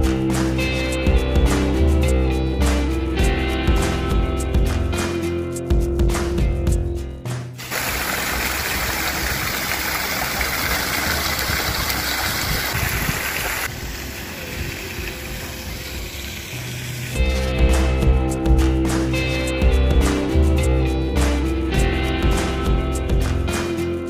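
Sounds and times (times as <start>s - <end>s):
background music: 0.0s - 10.0s, 17.1s - 24.0s
steady rushing noise: 11.0s - 17.7s.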